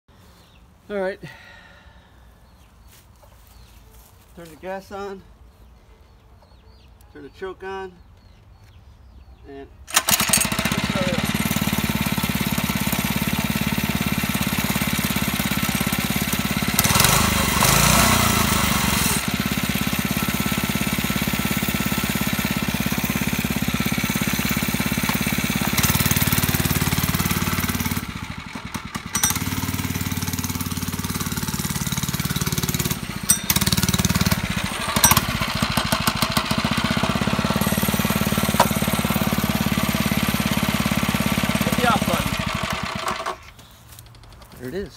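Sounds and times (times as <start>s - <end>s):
small engine running: 9.9s - 44.9s
engine knocks: 23.0s - 44.6s.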